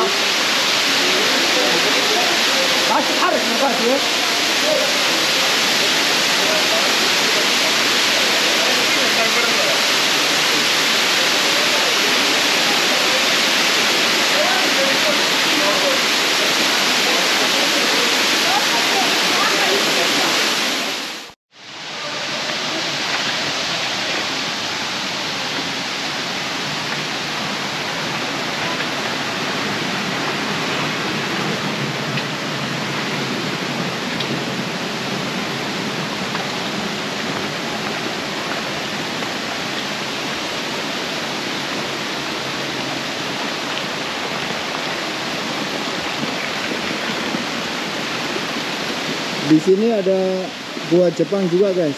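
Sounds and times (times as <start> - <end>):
waterfall and river rushing: 0.0 - 51.9.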